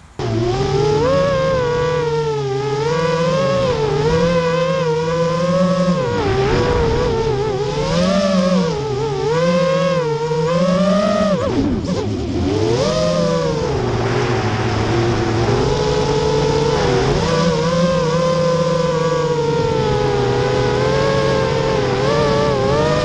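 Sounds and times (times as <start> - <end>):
quadcopter motors whining: 0.2 - 23.0.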